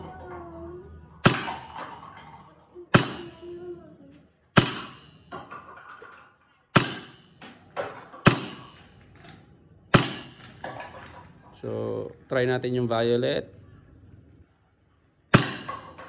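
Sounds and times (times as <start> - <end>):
airsoft pistol firing: 9.9 - 10.5.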